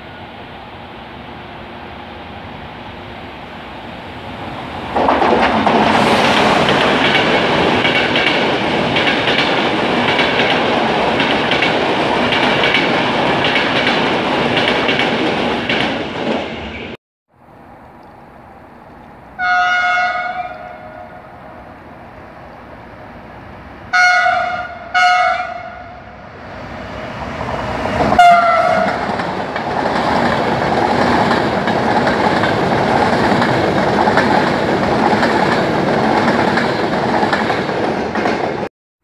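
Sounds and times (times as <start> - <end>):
train wheels rumbling on rail: 0.0 - 17.0, 18.4 - 38.7
train horn blasts: 19.4 - 21.3, 23.9 - 26.1, 28.1 - 29.0.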